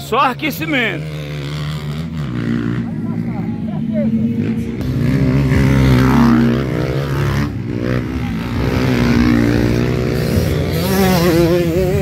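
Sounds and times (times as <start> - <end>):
motocross bike engine revving: 0.0 - 12.0.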